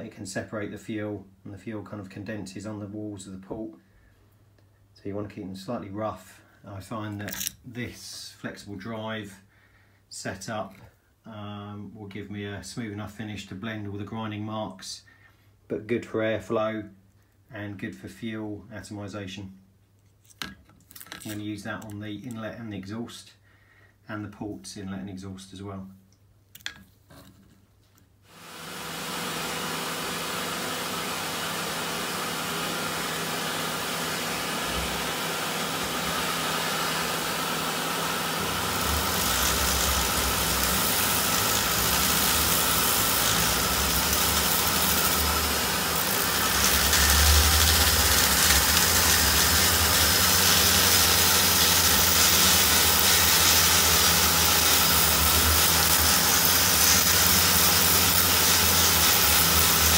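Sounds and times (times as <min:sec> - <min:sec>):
rotary tool grinding metal: 0:36.6 - 0:59.9.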